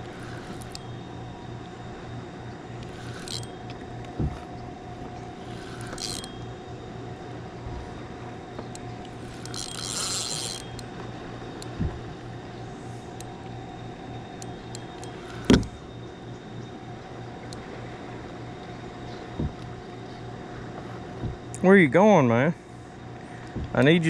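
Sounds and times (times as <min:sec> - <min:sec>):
spinning reel cranking: 0:00.0 - 0:02.0, 0:02.6 - 0:06.8, 0:08.7 - 0:15.9.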